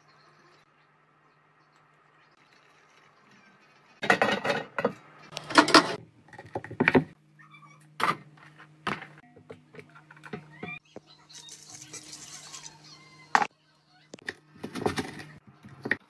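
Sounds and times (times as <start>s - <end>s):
metal lid clanking: 4.0s - 6.0s.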